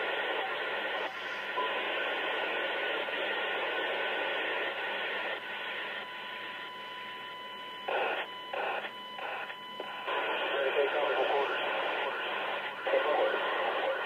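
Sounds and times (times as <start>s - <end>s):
radio channel hiss: 0.0s - 6.7s, 7.9s - 14.0s
steady radio tones: 0.0s - 14.0s.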